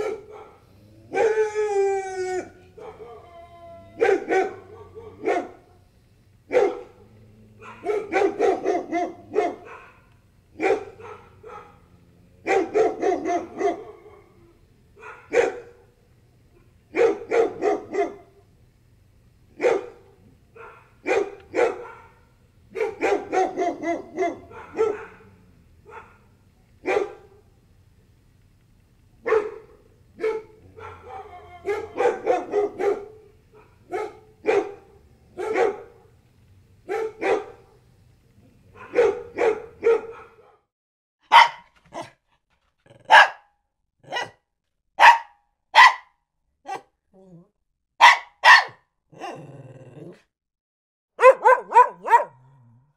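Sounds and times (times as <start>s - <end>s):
dog barking: 0.0s - 1.4s, 2.8s - 3.2s, 4.0s - 5.8s, 6.5s - 14.4s, 15.0s - 15.9s, 16.9s - 18.4s, 19.6s - 27.5s, 29.2s - 36.2s, 36.8s - 37.8s, 38.7s - 42.2s, 43.0s - 44.4s, 45.0s - 46.9s, 48.0s - 49.5s, 51.2s - 52.6s.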